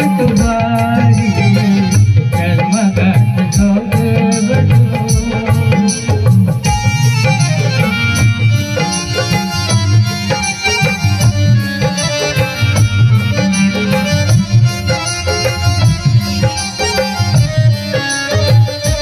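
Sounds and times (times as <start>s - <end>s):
hand-drum beat: 0.0s - 19.0s
instrumental folk melody: 4.8s - 19.0s.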